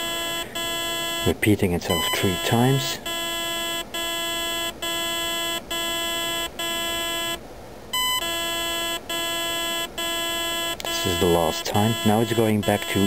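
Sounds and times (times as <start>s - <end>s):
short higher beep: 1.9s - 3.2s.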